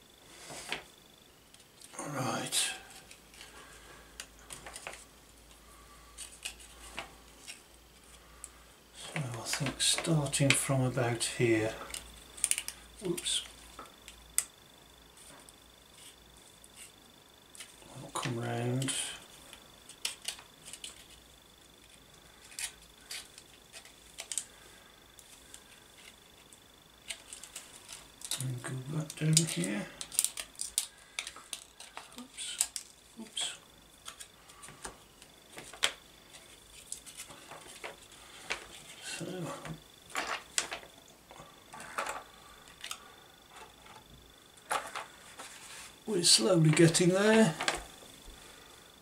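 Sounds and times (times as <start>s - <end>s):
scissors snipping plastic: 29.3s - 32.9s.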